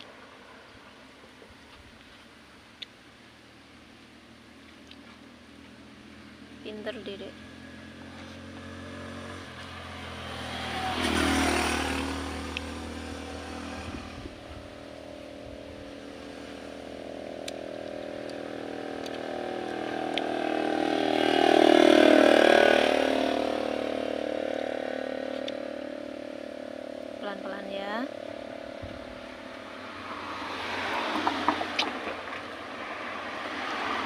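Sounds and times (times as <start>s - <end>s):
motor vehicles passing by: 0.0s - 34.0s
steady engine hum: 0.0s - 34.0s.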